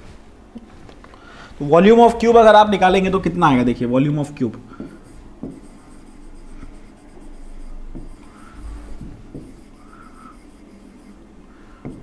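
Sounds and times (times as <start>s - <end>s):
marker writing on whiteboard: 4.7s - 12.0s.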